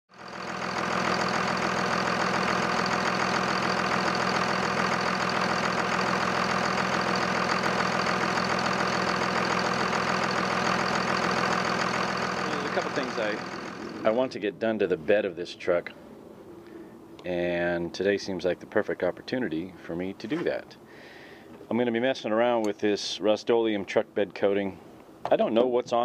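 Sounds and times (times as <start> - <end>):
diesel engine idling: 0.1 - 21.6.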